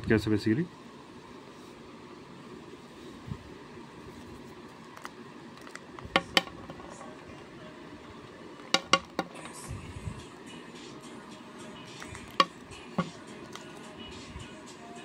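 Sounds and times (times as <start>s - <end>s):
tablets clicking onto a plate: 5.6s - 7.0s, 8.6s - 9.5s.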